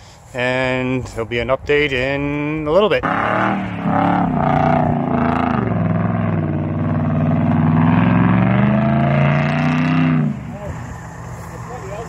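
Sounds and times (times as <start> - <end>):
vehicle engine revving: 3.0 - 12.0.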